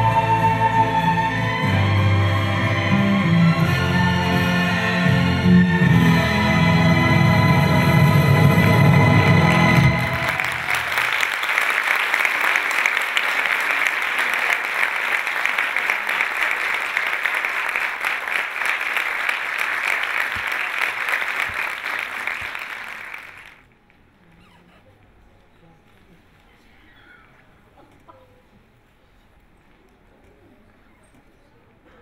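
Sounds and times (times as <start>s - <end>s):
music: 0.0s - 11.0s
audience applauding: 8.1s - 23.7s.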